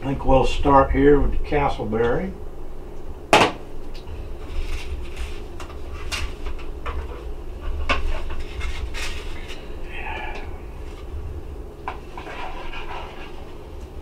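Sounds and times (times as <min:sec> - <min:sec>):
low steady hum: 0:00.0 - 0:14.0.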